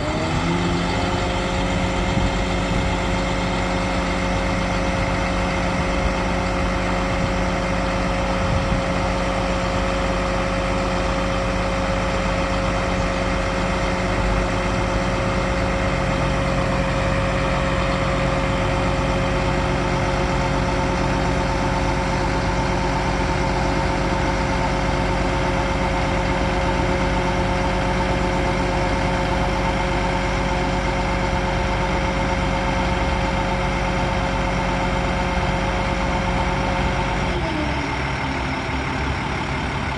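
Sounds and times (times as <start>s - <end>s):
hydraulic whine: 0.0s - 3.4s
diesel engine running: 0.0s - 39.9s.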